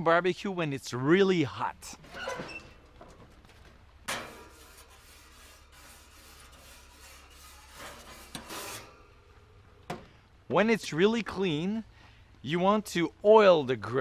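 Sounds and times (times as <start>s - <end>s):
grill brush scraping metal grates: 4.0s - 9.6s.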